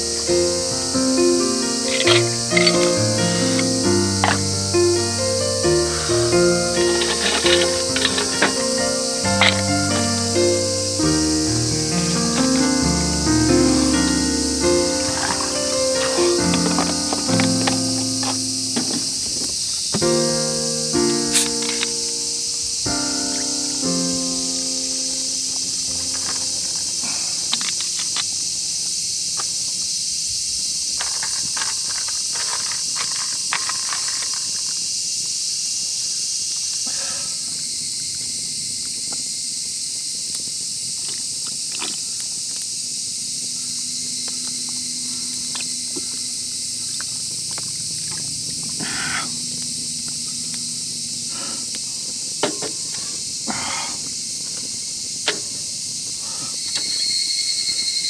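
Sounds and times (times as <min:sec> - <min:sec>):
insect chorus hissing: 0:00.0 - 0:58.0
campfire crackling: 0:00.2 - 0:18.4.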